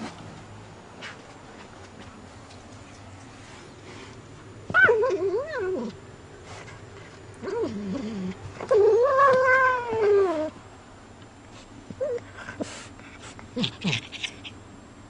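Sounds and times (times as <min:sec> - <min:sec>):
cat yowling: 0:04.7 - 0:06.0, 0:08.6 - 0:10.6.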